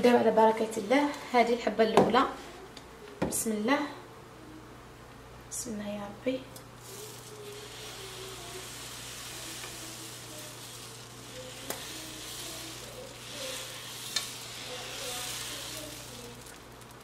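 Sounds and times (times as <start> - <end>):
batter sizzling on griddle: 6.8 - 17.0.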